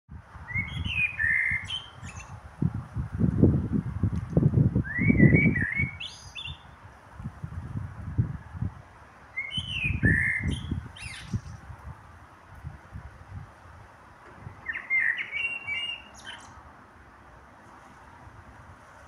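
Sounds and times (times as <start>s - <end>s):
blackbird singing: 0.5s - 2.4s, 4.8s - 6.8s, 9.3s - 11.6s, 14.6s - 16.6s.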